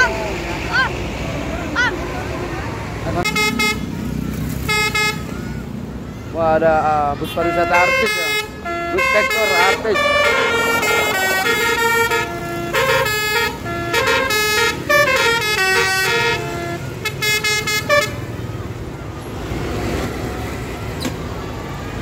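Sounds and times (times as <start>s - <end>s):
traffic noise: 0.0s - 22.0s
musical air horn melody: 3.2s - 3.8s, 4.7s - 5.3s, 7.4s - 18.2s.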